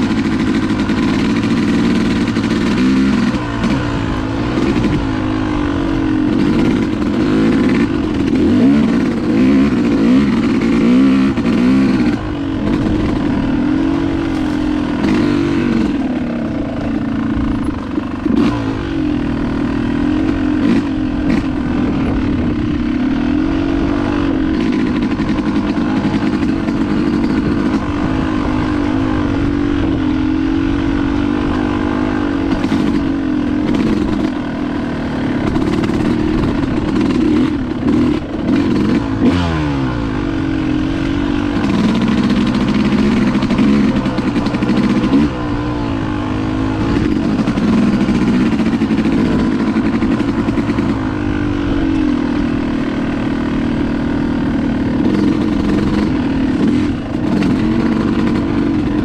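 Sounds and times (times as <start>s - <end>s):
knocks and clatter from bike: 0.0s - 5.2s, 14.2s - 18.6s, 24.5s - 28.5s, 32.4s - 34.5s, 35.3s - 39.5s, 41.0s - 45.5s, 46.8s - 51.0s, 54.9s - 59.0s
dirt bike engine revving: 0.0s - 59.0s.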